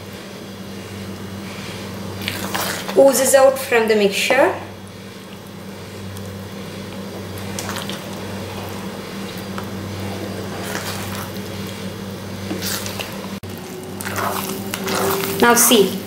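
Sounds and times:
steady low hum: 0.0s - 16.0s
sticky squelching of stirred food: 0.8s - 3.2s, 4.9s - 16.0s
spatula scraping a pan: 14.0s - 15.7s.

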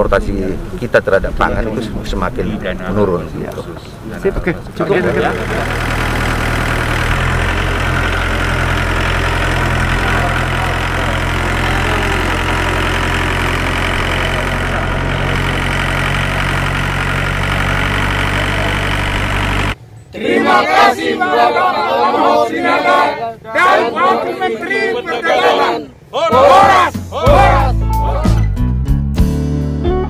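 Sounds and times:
tractor diesel engine idling: 2.6s - 19.9s.

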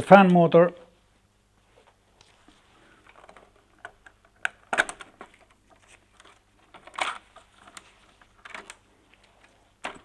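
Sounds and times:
plastic parts clicking: 3.0s - 10.0s.

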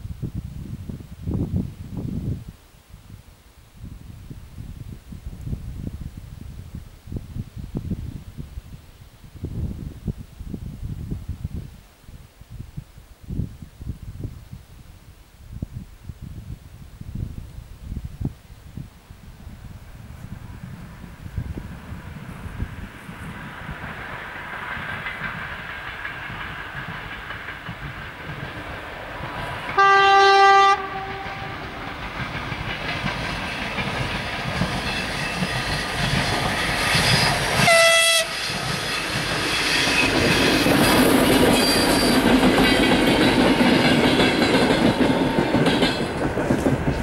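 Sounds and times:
train engine rumble: 15.5s - 47.0s
wheels clattering over rail joints: 23.7s - 29.8s, 31.3s - 37.8s, 38.4s - 47.0s
locomotive horn blast: 29.8s - 31.9s, 37.6s - 38.6s.

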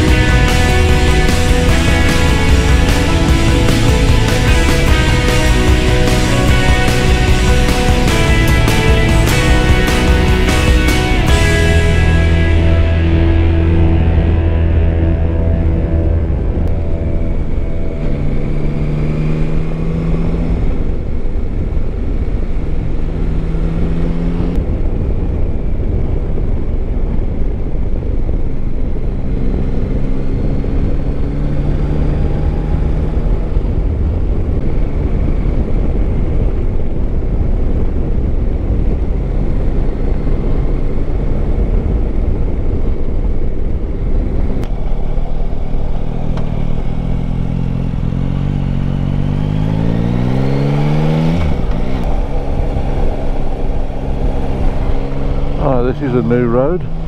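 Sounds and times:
motorcycle engine running: 0.0s - 57.0s
wind rumble on microphone: 12.8s - 57.0s.

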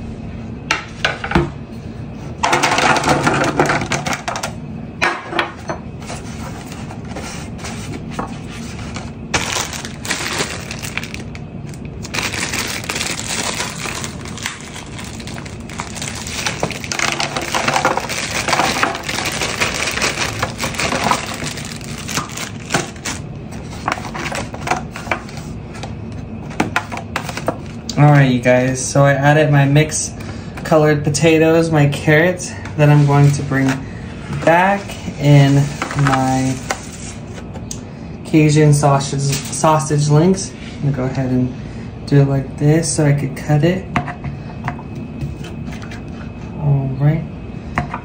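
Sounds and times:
potato chunks clattering into foil pan: 9.4s - 11.3s, 12.1s - 23.2s.

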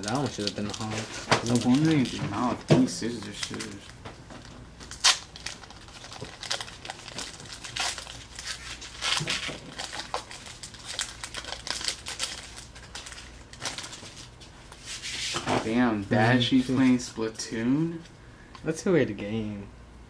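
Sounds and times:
cards rustling and flicking: 0.0s - 3.9s.

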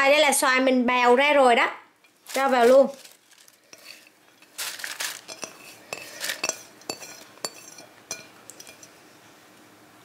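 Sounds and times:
soft handling noise: 2.0s - 9.0s
plate clinking against bowl: 5.2s - 9.0s.

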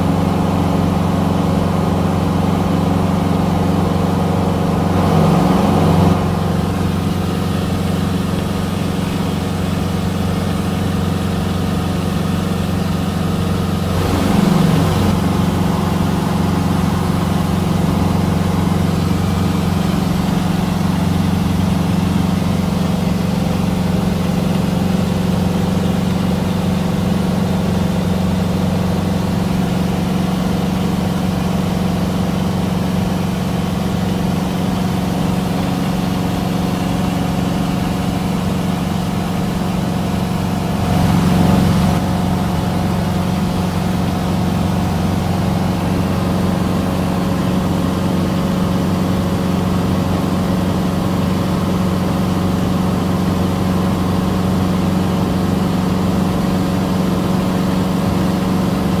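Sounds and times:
airplane engine droning: 0.0s - 59.0s.

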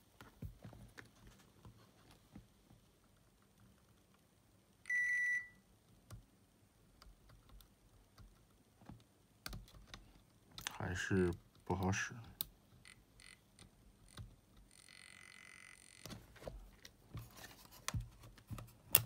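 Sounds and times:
multimeter continuity beep: 4.9s - 5.6s, 14.7s - 16.1s.

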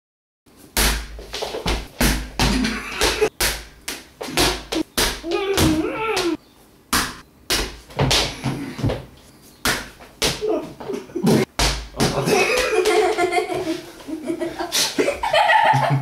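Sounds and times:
child's voice wavering: 5.2s - 6.4s
sharp irregular thuds: 11.3s - 12.8s.

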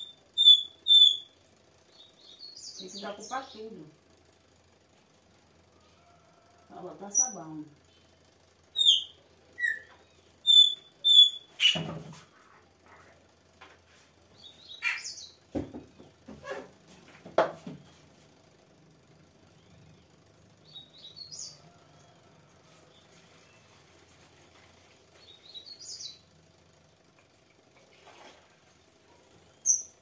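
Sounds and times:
high bird chirps: 0.0s - 3.6s, 8.7s - 11.8s, 14.4s - 15.4s, 29.5s - 30.0s.

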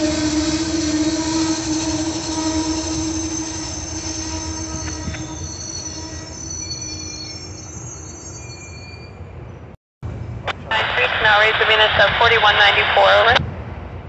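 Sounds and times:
train rumble: 0.0s - 8.2s, 9.2s - 14.0s
train wheels squealing: 0.0s - 9.7s.

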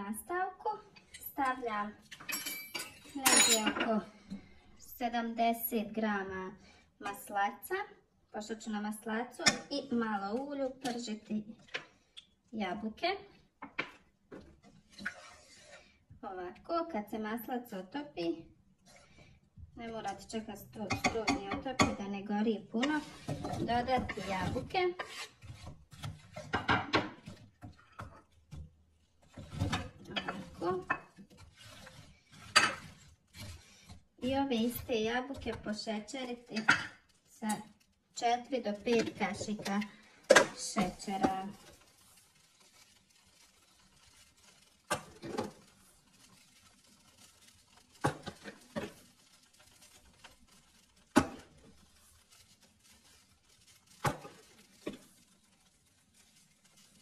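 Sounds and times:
spatula scraping frying pan: 13.8s - 16.0s, 22.7s - 37.8s, 43.0s - 55.3s.

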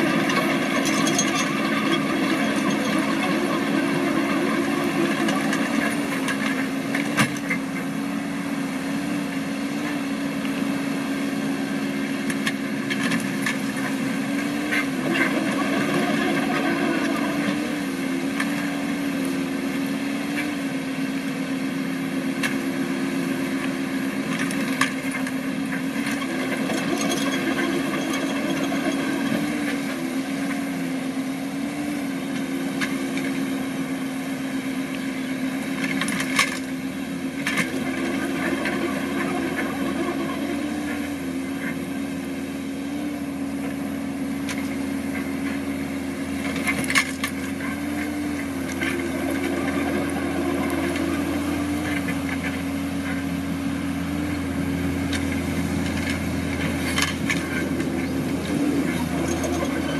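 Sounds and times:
excavator clanks: 0.0s - 8.0s, 12.2s - 19.4s, 23.5s - 30.9s, 35.0s - 42.0s, 44.4s - 59.9s
excavator diesel engine running: 0.0s - 59.9s.

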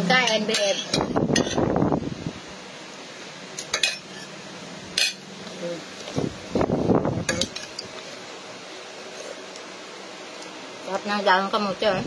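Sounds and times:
spoons clinking against bowls: 3.6s - 4.4s, 5.0s - 5.2s, 7.2s - 7.9s.

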